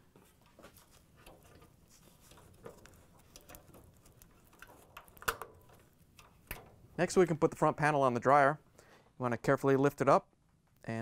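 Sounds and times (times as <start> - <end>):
rustling of gloved hands: 0.0 - 7.4.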